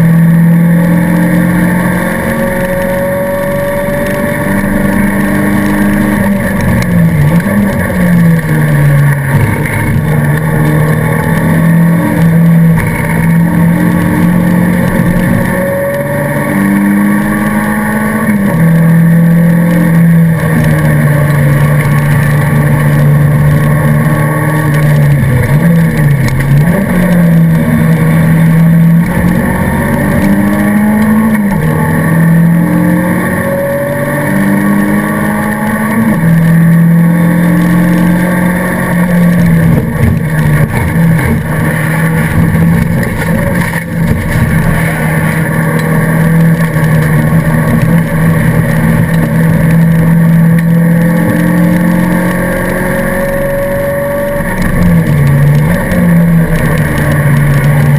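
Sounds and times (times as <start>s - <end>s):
racing car engine at high revs: 0.0s - 57.9s.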